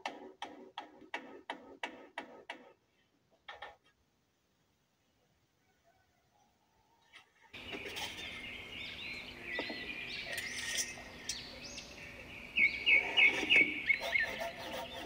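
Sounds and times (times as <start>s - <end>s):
woodland birds singing: 7.6s - 15.0s.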